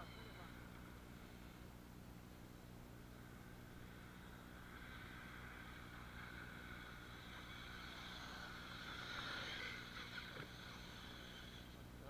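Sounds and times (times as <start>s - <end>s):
rc car electric motors whining: 3.2s - 11.9s.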